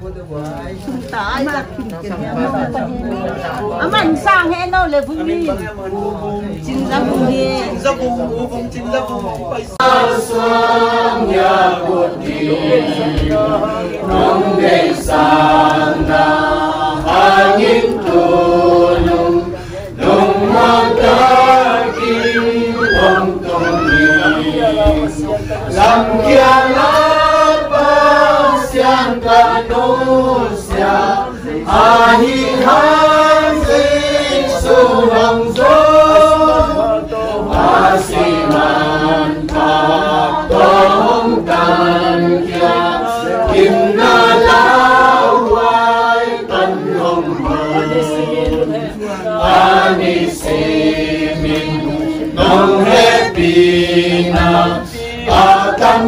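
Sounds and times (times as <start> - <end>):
choir chanting melody: 9.3 - 56.0.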